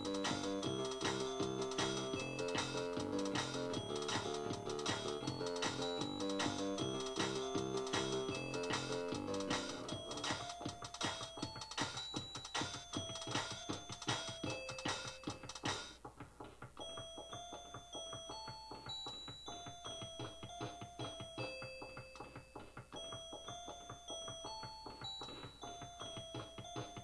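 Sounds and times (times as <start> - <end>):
electronic keyboard bell-like melody: 0.0 - 15.8, 16.8 - 27.0
electronic drum beat: 0.0 - 18.8.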